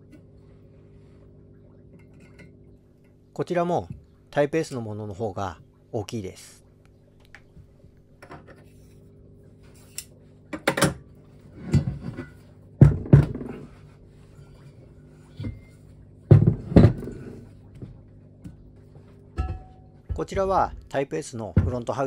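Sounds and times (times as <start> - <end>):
metal engine parts clunking: 19.4 - 21.0.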